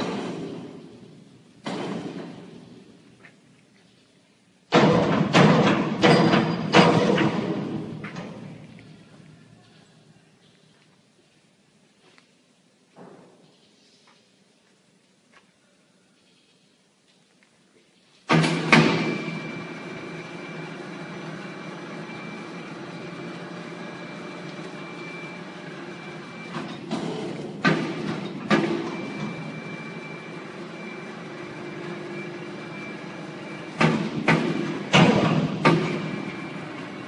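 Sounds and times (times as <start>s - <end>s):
factory machinery running: 0.0s - 3.2s, 4.7s - 9.6s, 18.3s - 37.0s
loud knocks: 1.6s - 2.6s, 4.7s - 8.4s.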